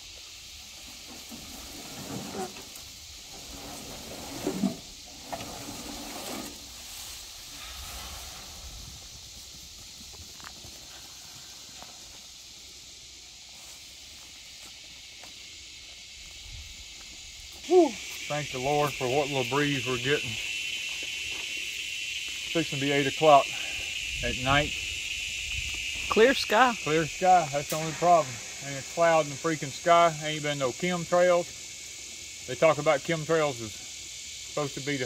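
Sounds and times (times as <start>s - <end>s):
insect chorus: 0.0s - 35.0s.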